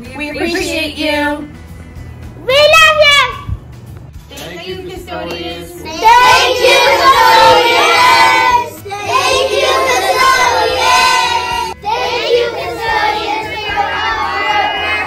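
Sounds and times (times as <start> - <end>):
children singing in unison: 6.0 - 15.0.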